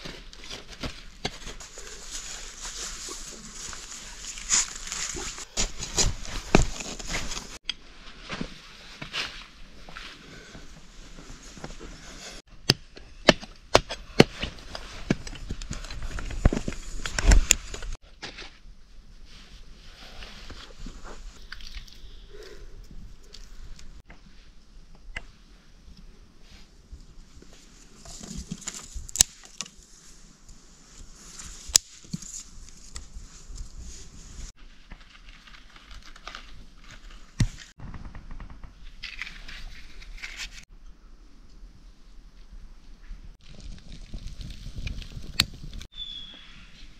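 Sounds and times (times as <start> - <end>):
twigs rustling and crackling: 0.0 - 8.4, 27.4 - 37.8, 43.4 - 46.3.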